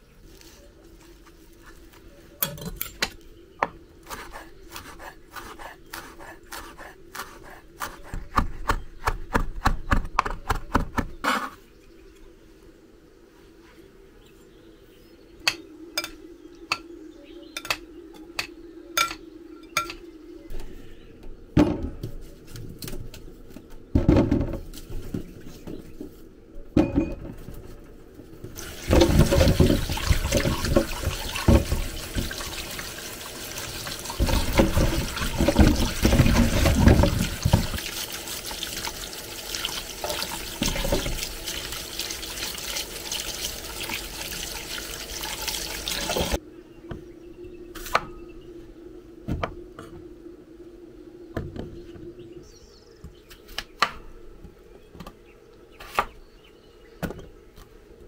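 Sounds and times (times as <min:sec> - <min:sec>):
water running into sink: 0:28.6 - 0:46.4.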